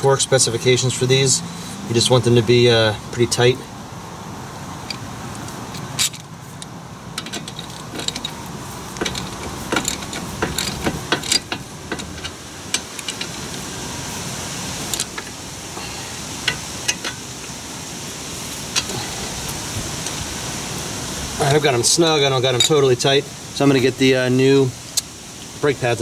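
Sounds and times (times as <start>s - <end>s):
steady outdoor hiss: 0.0s - 26.0s
wrench clicking on bolts: 5.8s - 13.6s, 14.9s - 15.4s.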